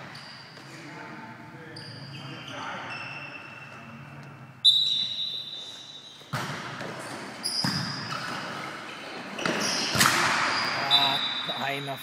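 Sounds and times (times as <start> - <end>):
volleyball hits: 6.2 - 8.8, 9.4 - 10.8.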